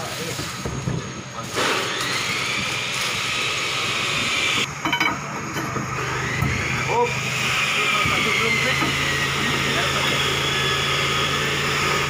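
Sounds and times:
rushing hiss: 0.0s - 4.6s.

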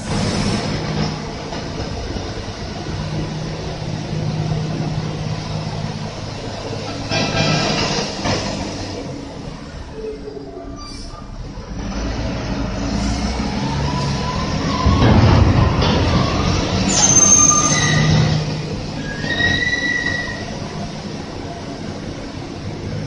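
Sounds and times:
metallic squeals and whines: 10.0s - 11.4s, 14.0s - 20.7s.

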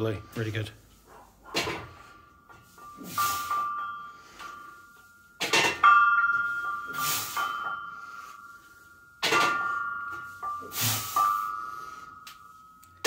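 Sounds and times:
barbell weight plates clanking: 5.4s - 8.0s, 9.2s - 11.5s.

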